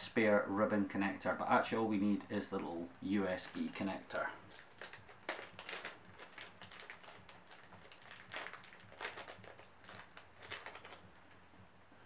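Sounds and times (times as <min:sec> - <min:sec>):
clicking and crinkling of packaging: 0:03.2 - 0:11.5.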